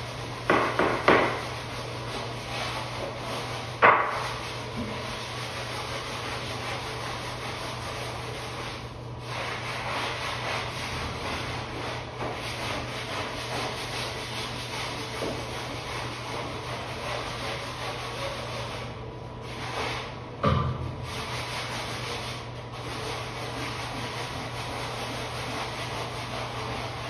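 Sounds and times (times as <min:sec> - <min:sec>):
brush scrubbing tile floor: 0:00.0 - 0:27.0.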